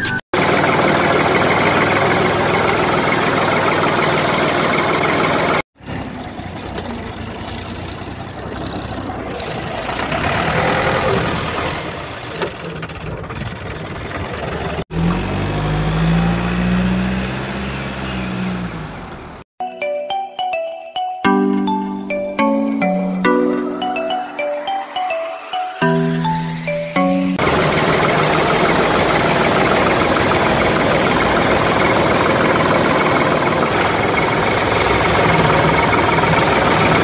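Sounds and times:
rattling engine running: 0.4 - 16.0, 27.4 - 37.0
rough noisy engine: 0.4 - 19.4, 27.4 - 37.0.

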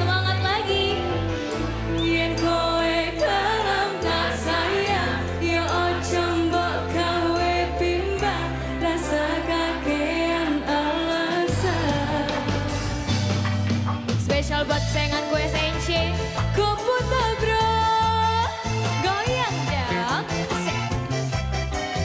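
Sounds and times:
woman singing into microphone: 0.0 - 1.3, 1.9 - 13.2, 14.2 - 20.6
band with bass and drums: 10.8 - 22.0.

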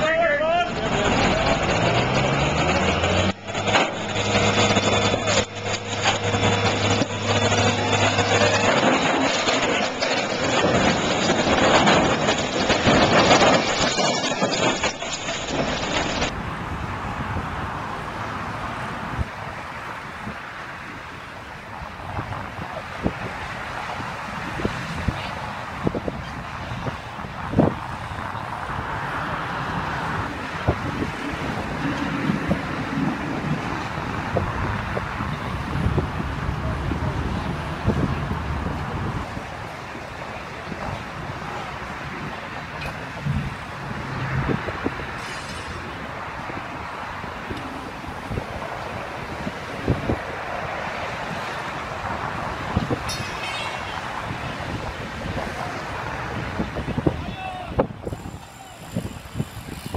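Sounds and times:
diesel engine running: 0.0 - 16.4
construction site noise: 0.0 - 59.9
wind on microphone: 21.8 - 45.2, 54.0 - 59.9.

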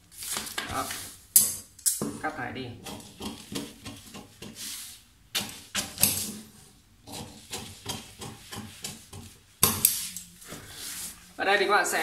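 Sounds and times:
paper rustling: 0.0 - 1.2.

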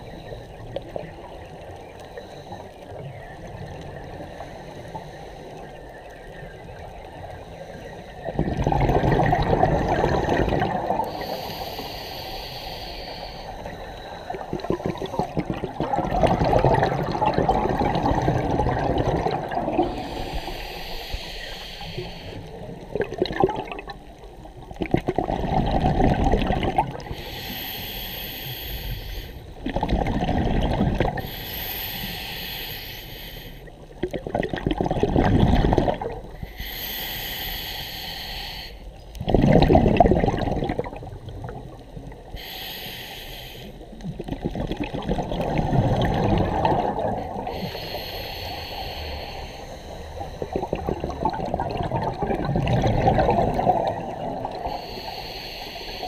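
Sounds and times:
exhaled bubbles rushing: 8.3 - 11.2, 14.3 - 20.1, 22.9 - 24.0, 24.7 - 27.1, 29.6 - 31.3, 34.0 - 36.3, 39.2 - 41.8, 44.0 - 47.5, 50.2 - 54.7
regulator hiss: 11.0 - 14.4, 19.9 - 22.8, 27.1 - 29.6, 31.2 - 33.8, 36.4 - 39.0, 41.8 - 44.0, 47.3 - 50.9, 54.5 - 56.0.

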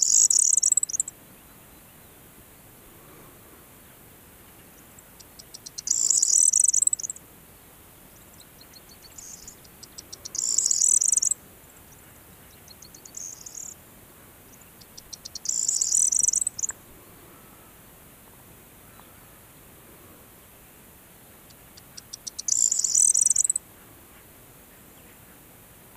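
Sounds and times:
bird singing: 0.0 - 2.3, 3.8 - 7.2, 8.1 - 13.8, 14.4 - 17.7, 18.8 - 19.4, 21.3 - 23.6.

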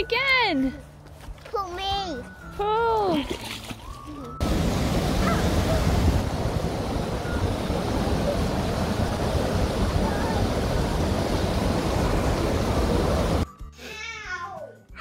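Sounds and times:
water rushing over a weir: 4.4 - 13.4.

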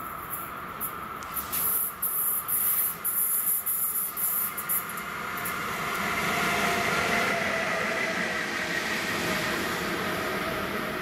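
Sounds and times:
locomotive drive whine: 0.0 - 11.0
wheels rumbling on rail: 0.0 - 11.0.

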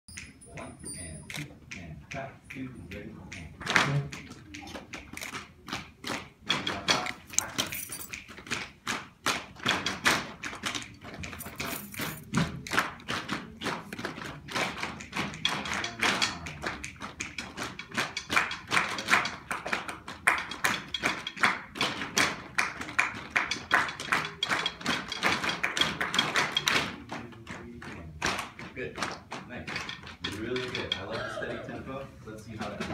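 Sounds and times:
rhythmic percussive tapping: 0.1 - 31.9.

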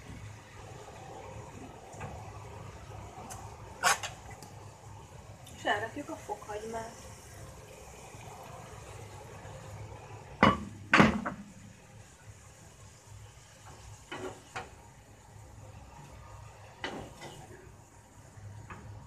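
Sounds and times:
sharp knocks on frying pan: 10.4 - 11.4.

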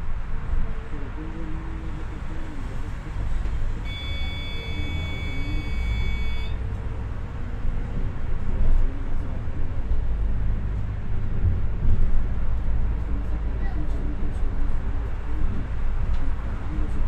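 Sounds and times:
bus engine and road rumble: 0.0 - 17.0
high electronic buzzer: 3.8 - 6.6.

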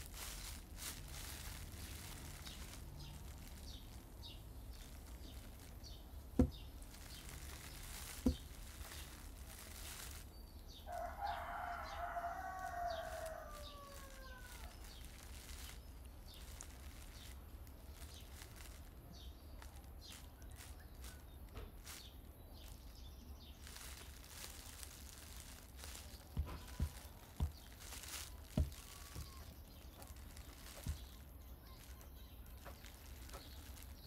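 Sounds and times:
faint outdoor background: 0.0 - 34.0
short dull knocks: 6.3 - 9.2.

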